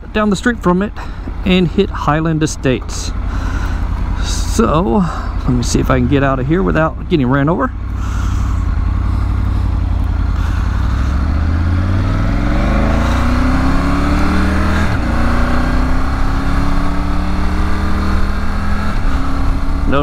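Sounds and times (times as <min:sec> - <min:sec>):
motorcycle engine accelerating: 0:00.0 - 0:20.0.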